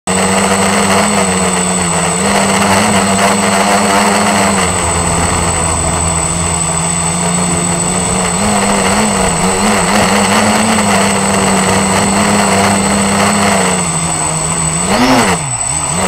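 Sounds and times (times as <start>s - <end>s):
drone motors and propellers buzzing: 0.7s - 16.0s
thin high whine: 2.9s - 15.0s.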